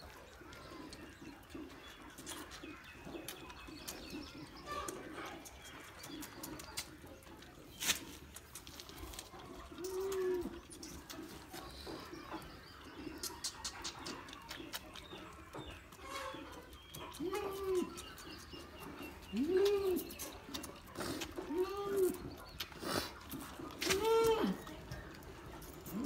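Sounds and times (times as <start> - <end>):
pigeon cooing: 9.3 - 12.0, 17.1 - 18.2, 19.2 - 26.0.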